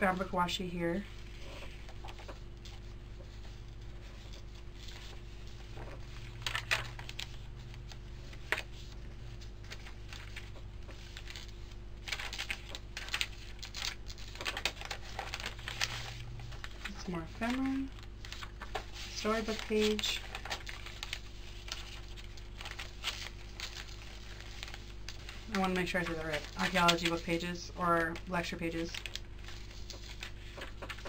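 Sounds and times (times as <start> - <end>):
paper pages rustling: 0.0 - 31.0
steady low hum: 0.0 - 31.0.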